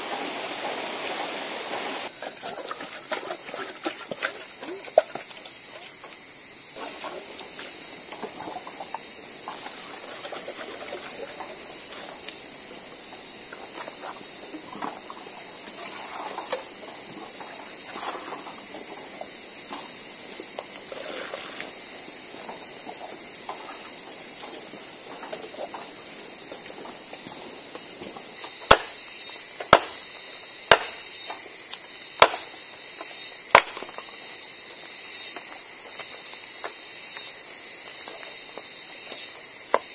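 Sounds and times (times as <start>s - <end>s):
steady high hiss: 0.0s - 2.1s, 5.3s - 39.9s
blade striking ground: 28.6s - 29.0s, 29.6s - 30.0s, 30.7s - 31.1s, 32.2s - 32.5s.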